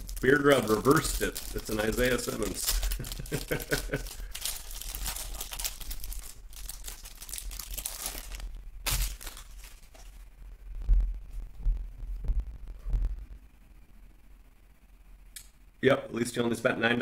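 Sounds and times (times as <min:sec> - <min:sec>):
plastic wrapper crinkling: 0:00.0 - 0:10.2.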